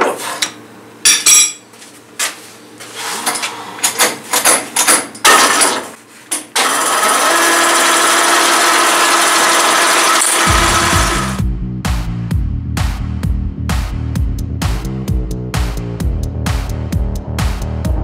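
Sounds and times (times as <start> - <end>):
lathe running with steady hum: 6.6 - 11.3.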